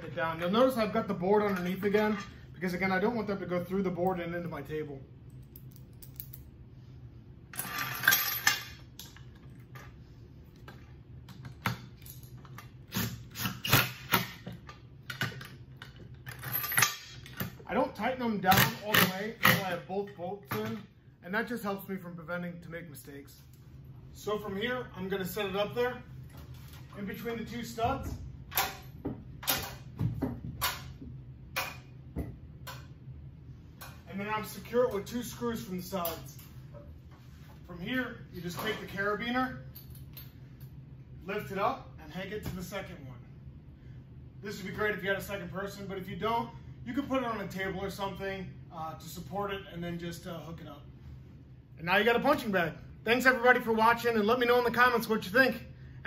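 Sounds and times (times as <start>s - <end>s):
metal hardware clinking: 5.3s - 6.5s.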